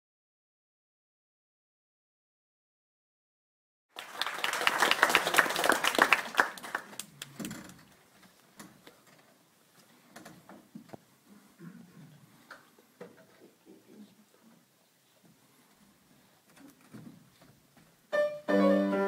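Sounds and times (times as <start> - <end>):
audience applauding: 3.9 - 7.8.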